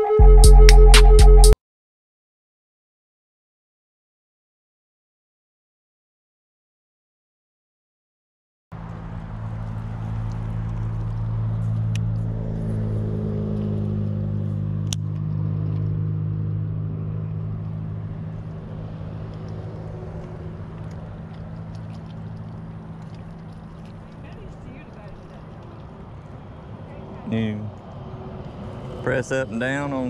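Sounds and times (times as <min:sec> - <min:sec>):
boat motor humming: 0:08.8 - 0:30.0.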